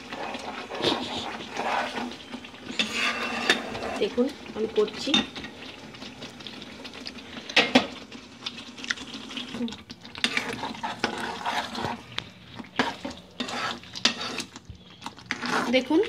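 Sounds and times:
spatula scraping a pan: 0:00.0 - 0:04.2, 0:10.2 - 0:14.6, 0:15.3 - 0:16.0.

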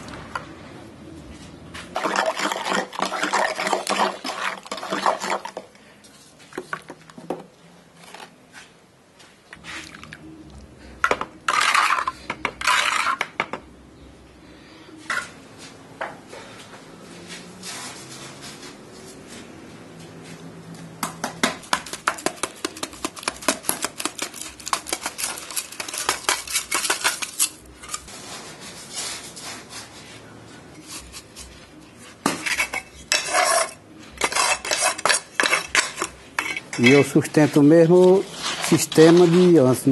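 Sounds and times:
cement mix scraping in metal mould: 0:01.8 - 0:05.7, 0:11.1 - 0:13.4, 0:21.6 - 0:30.1, 0:32.2 - 0:39.9.

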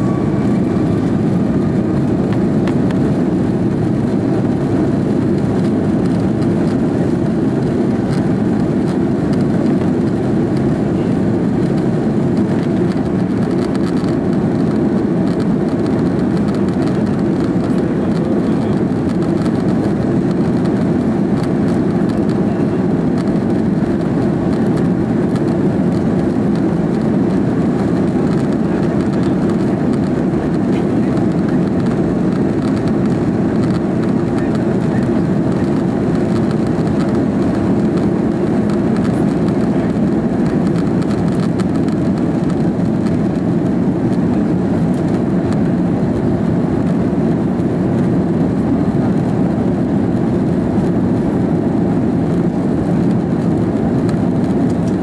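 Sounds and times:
cabin air: 0:00.0 - 0:07.4
jet engines rumbling: 0:00.0 - 0:55.0.

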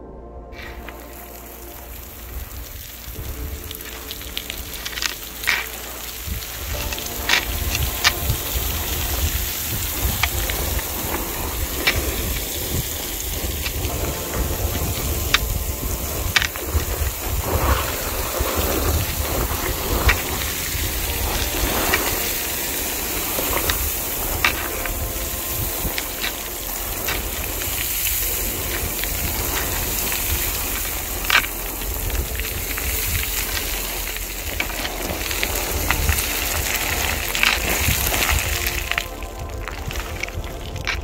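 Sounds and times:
gravel rattling underfoot: 0:00.6 - 0:41.0
stone clicking: 0:03.7 - 0:12.6, 0:21.9 - 0:41.0.

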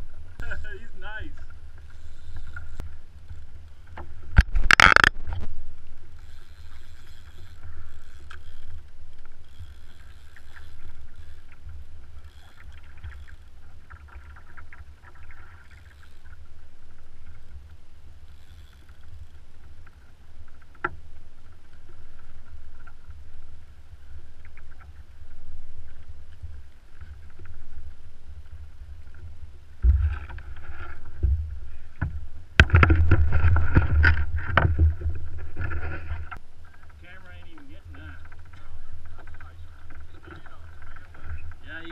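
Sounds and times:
water lapping against hull: 0:00.0 - 0:41.9
water splashes: 0:00.0 - 0:41.9
knocks in kayak: 0:29.8 - 0:30.3, 0:31.2 - 0:36.0.

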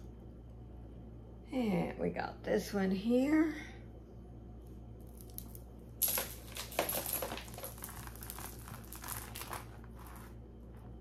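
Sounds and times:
packaging crinkling: 0:06.4 - 0:10.4.

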